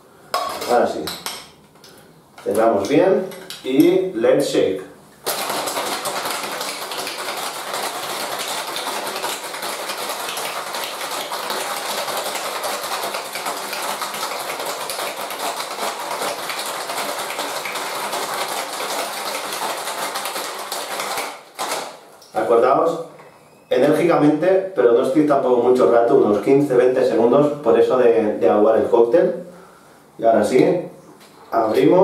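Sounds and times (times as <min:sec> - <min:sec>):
ice rattling in cocktail shaker: 0:05.3 - 0:21.8.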